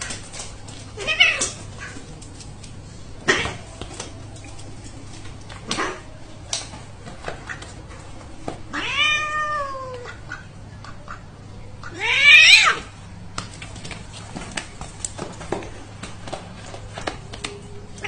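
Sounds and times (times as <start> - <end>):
cat meowing: 8.7 - 10.1, 11.9 - 12.9.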